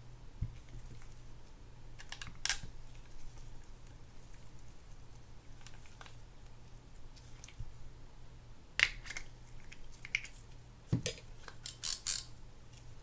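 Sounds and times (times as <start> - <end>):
reel parts clicking: 11.6 - 12.3.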